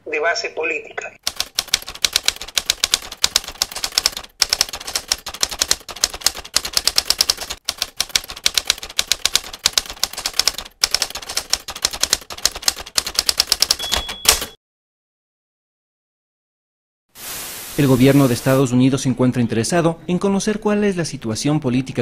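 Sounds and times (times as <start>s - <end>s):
manual typewriter keystrokes: 1.2s - 14.6s.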